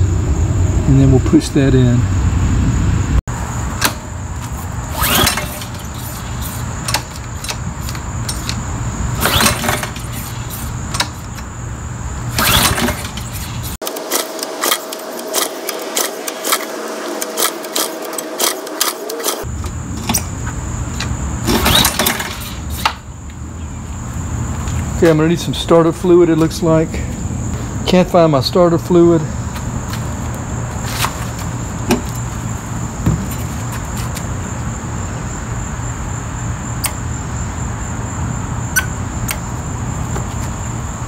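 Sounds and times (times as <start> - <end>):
engine recoil starter pulls: 4.8 - 11.5, 12.3 - 20.2, 21.4 - 23.0.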